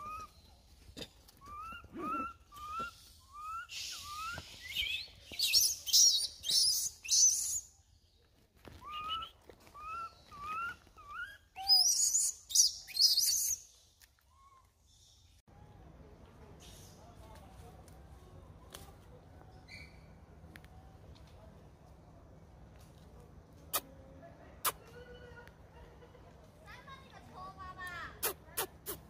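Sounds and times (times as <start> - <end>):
monkey chirp-like calls: 0.0 - 0.4, 1.4 - 7.7, 9.8 - 13.6.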